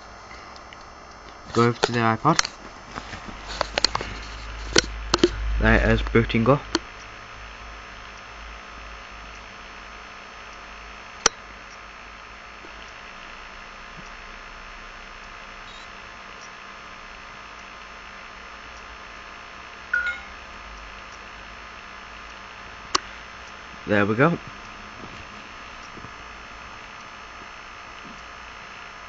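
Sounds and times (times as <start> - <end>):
electrical hum and hiss: 0.0 - 29.0
sharp click: 4.7 - 5.4
short high blip: 20.0 - 20.4.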